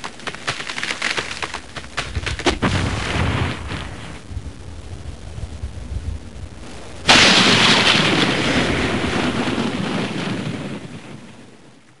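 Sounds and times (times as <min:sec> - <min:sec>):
cartoon thunderclap: 0:02.4 - 0:04.3, 0:07.1 - 0:11.8.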